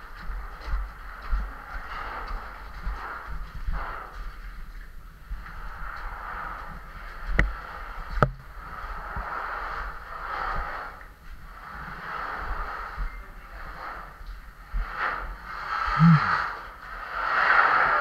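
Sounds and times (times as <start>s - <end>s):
heavy breathing: 15.8s - 16.6s
low vocal grunt: 15.9s - 16.5s.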